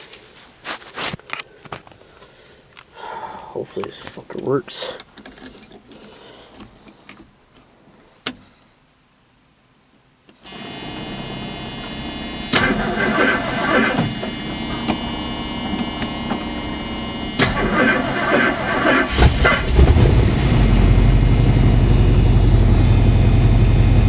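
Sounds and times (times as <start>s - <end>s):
truck engine starting and running: 10.4s - 24.0s.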